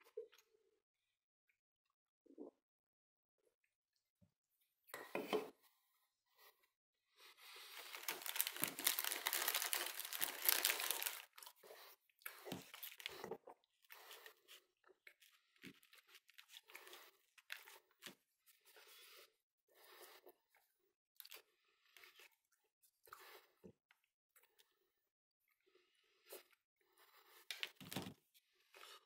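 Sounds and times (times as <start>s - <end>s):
food packaging crinkling: 7.6s - 11.6s, 12.6s - 13.2s.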